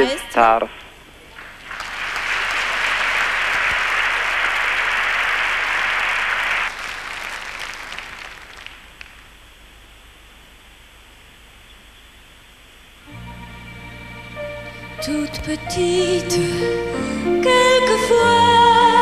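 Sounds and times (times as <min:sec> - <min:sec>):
audience applauding: 0:01.3 - 0:09.4.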